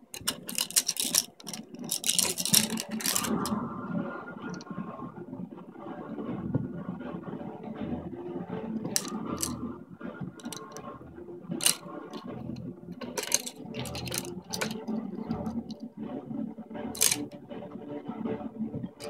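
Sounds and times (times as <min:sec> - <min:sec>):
plastic toy rattling: 0:00.0 - 0:03.5, 0:08.8 - 0:09.6, 0:10.4 - 0:10.8, 0:11.6 - 0:15.8, 0:17.0 - 0:17.3.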